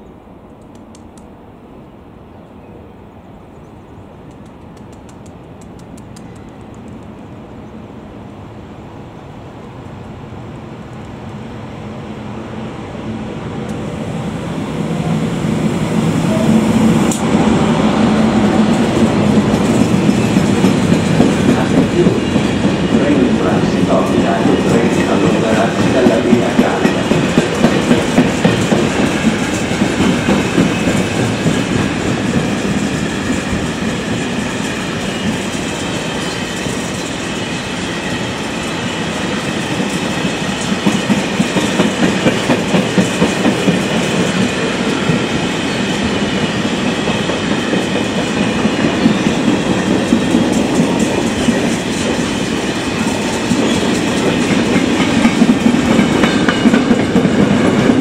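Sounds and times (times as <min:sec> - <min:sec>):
train wheels clattering over rails: 0:15.0 - 0:58.0.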